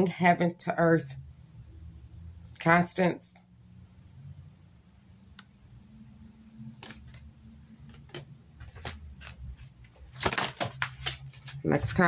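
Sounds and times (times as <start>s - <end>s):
card handling noise: 6.6s - 12.0s
cards clicking and tapping: 6.8s - 11.6s.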